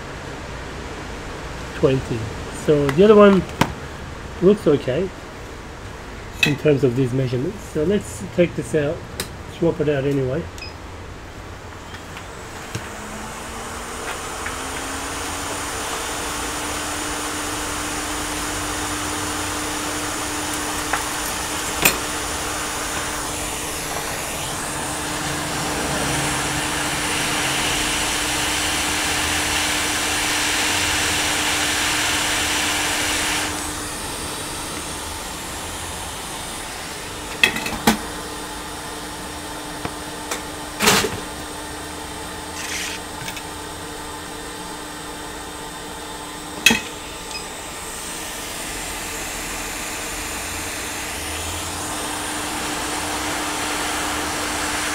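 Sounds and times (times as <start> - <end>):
steady hum: 0.0 - 54.9
hot air station blowing: 11.5 - 54.9.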